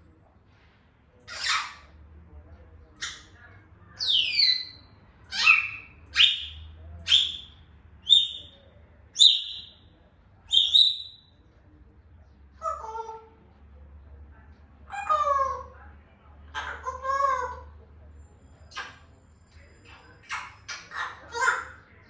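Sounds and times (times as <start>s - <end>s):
parrot whistling calls: 9.2s - 9.7s.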